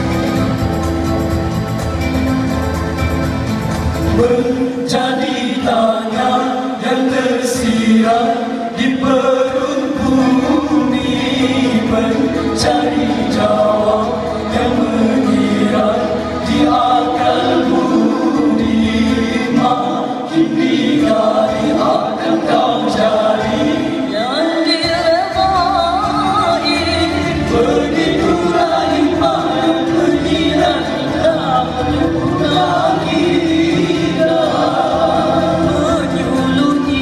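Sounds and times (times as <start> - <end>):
male group singing a cappella: 4.0 - 37.0.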